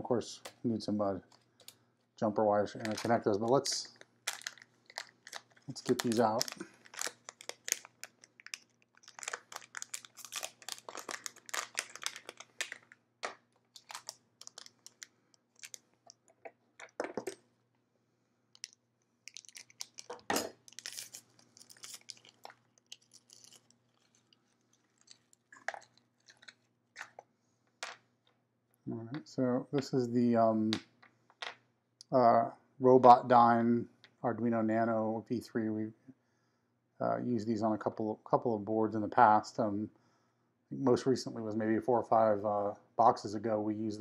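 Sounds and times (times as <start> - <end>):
plastic bags crinkling: 2.8 - 15.9, 18.6 - 27.2.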